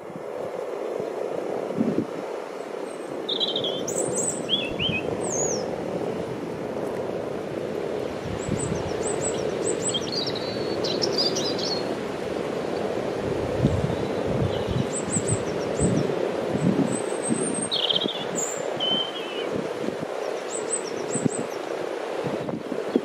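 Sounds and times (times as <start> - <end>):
wind buffeting microphone: 0.0 - 23.0
small birds chirping: 2.9 - 5.7, 8.4 - 11.9, 13.9 - 16.1, 16.9 - 21.7.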